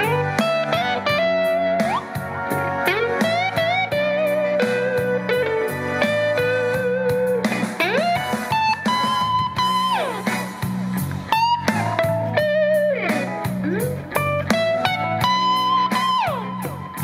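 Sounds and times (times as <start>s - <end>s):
blues electric guitar lead: 0.0s - 17.0s
low bass line: 0.0s - 17.0s.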